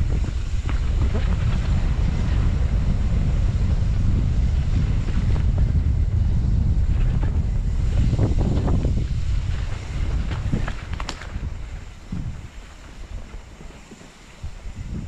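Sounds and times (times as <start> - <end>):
bike knocking and rattling: 0.0 - 15.0
wind buffeting microphone: 0.0 - 15.0.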